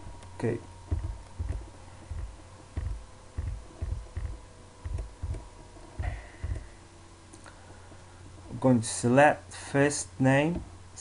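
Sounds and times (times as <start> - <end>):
faint steady hum: 0.0 - 11.0
keyboard typing: 0.9 - 5.4.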